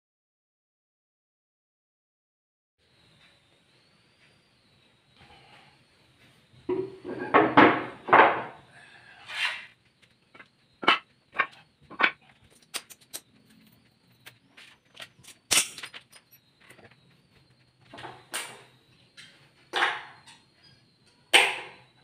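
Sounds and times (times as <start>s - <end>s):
wooden boards knocking on tile: 10.8s - 12.2s
metal hardware clinking on tiles: 10.8s - 17.0s.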